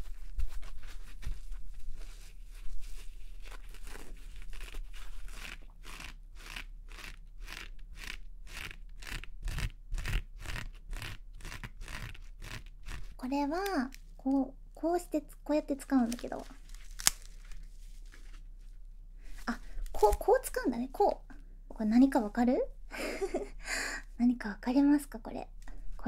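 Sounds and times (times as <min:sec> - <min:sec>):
fabric cone crunchy rustle: 0:00.0 - 0:06.2, 0:15.9 - 0:20.4.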